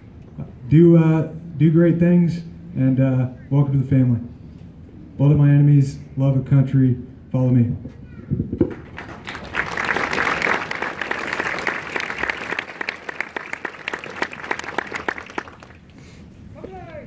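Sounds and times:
crowd applauding: 8.7s - 15.9s.

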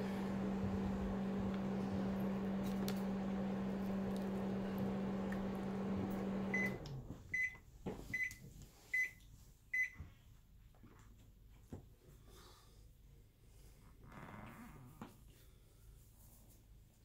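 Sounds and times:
microwave oven humming: 0.0s - 7.6s.

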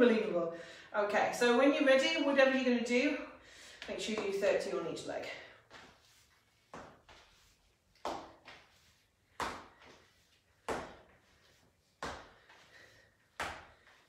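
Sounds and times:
feet thumping on hard floor: 5.7s - 14.0s.

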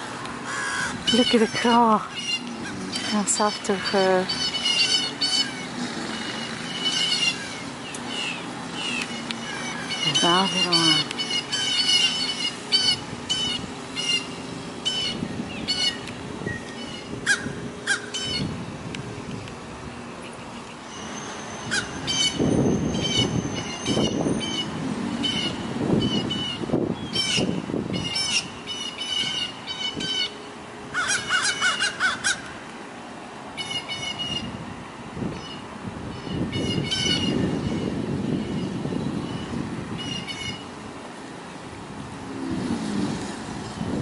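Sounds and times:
crows cawing: 0.4s - 1.2s, 17.2s - 18.4s, 30.9s - 32.5s.

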